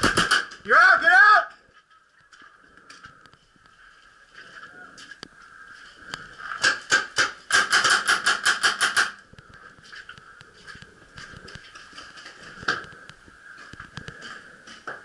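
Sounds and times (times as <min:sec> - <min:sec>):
paintball marker firing: 0:00.0 - 0:00.6, 0:06.6 - 0:09.2.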